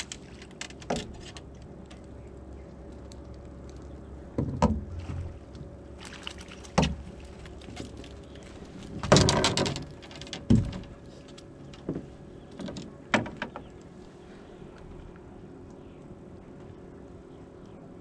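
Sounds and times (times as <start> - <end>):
net splashing into water: 6.0 - 8.1.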